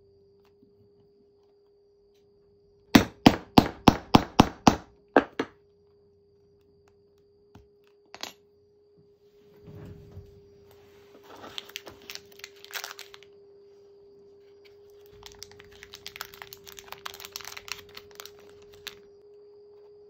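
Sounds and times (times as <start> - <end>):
plastic packaging crackling: 11.2 - 13.3, 14.9 - 19.0.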